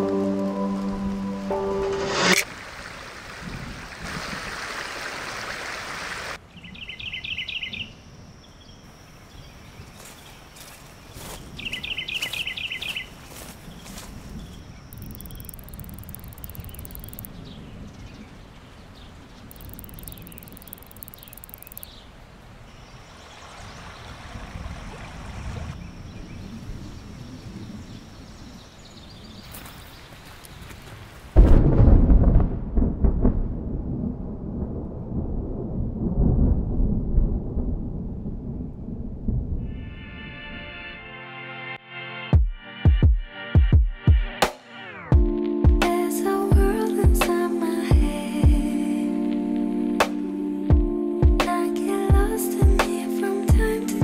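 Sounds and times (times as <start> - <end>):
rushing rain-like noise: 0.0 - 6.4
bird trills: 14.9 - 17.4, 19.5 - 22.0.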